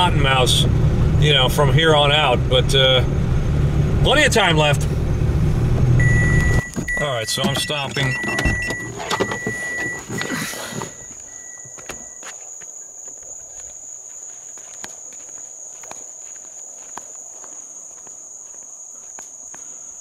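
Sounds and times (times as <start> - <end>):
night insect chorus trilling: 9.2 - 20.0.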